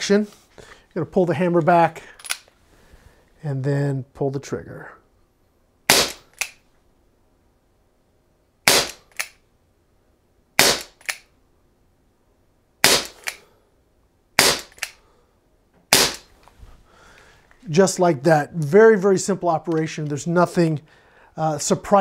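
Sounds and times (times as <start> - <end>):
pellet revolver shots: 5.9 - 6.6, 8.6 - 9.4, 10.6 - 11.2, 12.8 - 13.4, 14.4 - 15.0, 15.9 - 16.3.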